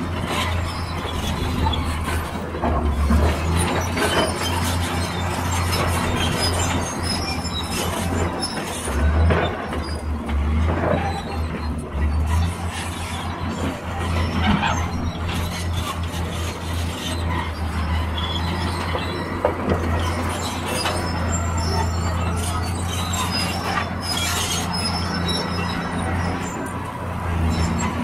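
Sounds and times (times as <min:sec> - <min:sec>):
excavator diesel engine droning: 0:00.0 - 0:28.0
high screeching: 0:20.0 - 0:28.0.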